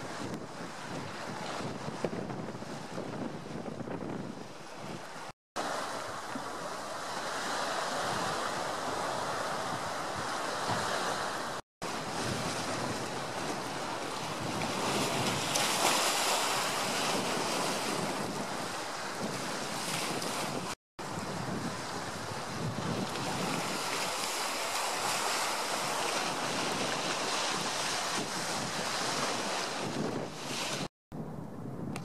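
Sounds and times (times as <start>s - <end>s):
wind rushing on microphone: 0.0s - 24.4s, 25.0s - 32.0s
choppy sea waves washing: 0.0s - 30.9s.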